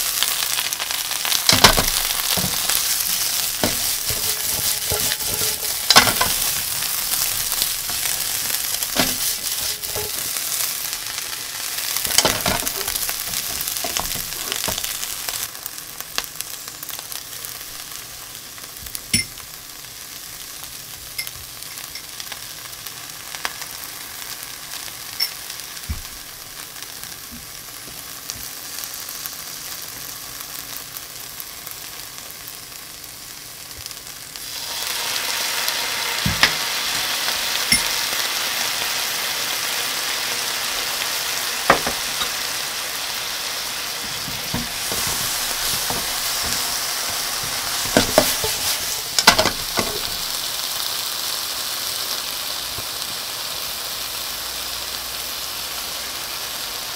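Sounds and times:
food sizzling in frying pan: 0.0s - 56.9s
utensils knocking on pan: 1.5s - 10.4s, 12.0s - 15.1s, 36.2s - 37.1s, 37.7s - 38.0s, 41.6s - 42.4s, 44.0s - 50.3s.

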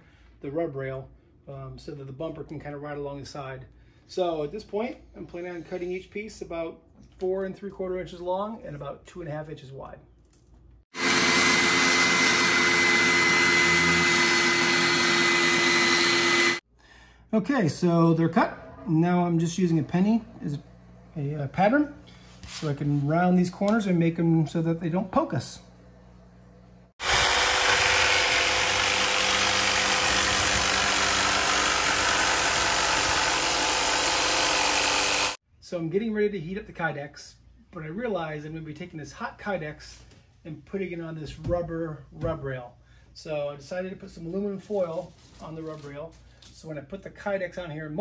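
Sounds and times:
table saw cutting plastic: 11.0s - 16.6s, 27.0s - 35.4s.

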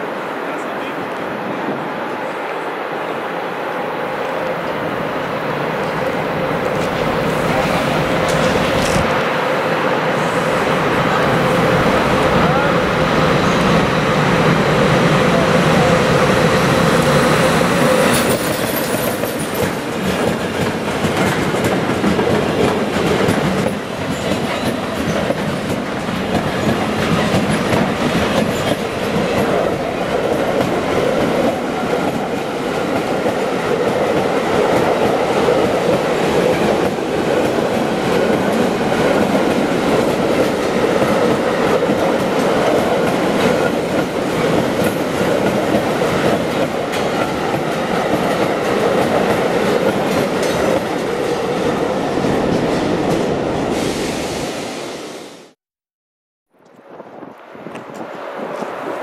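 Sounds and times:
freight train wheels clacking: 5.6s - 9.2s, 10.5s - 51.7s.

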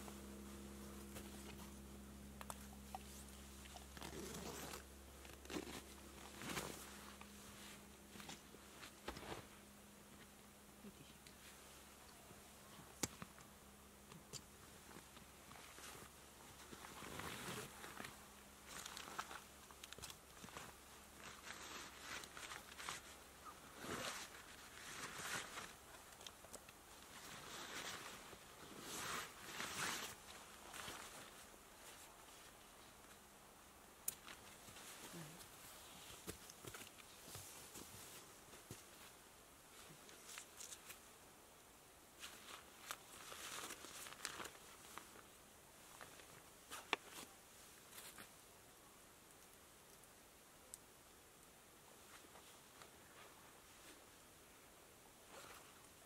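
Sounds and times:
fabric and nylon rustling: 0.0s - 10.4s, 14.7s - 33.2s, 42.2s - 48.3s, 55.2s - 55.8s
fabric pouch rustling: 2.6s - 9.6s, 27.1s - 32.5s, 42.2s - 45.2s.

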